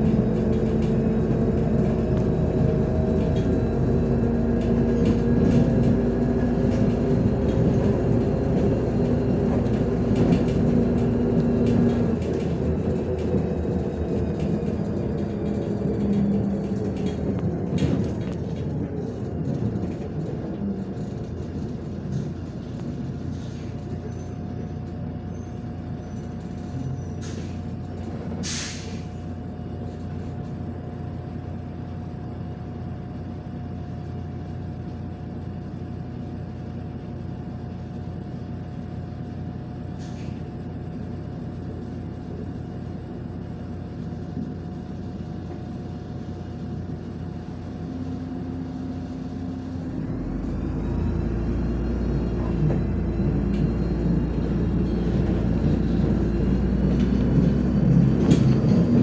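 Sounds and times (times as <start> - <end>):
bus engine and road drone: 0.0 - 59.0
compressed air hiss: 28.4 - 29.1.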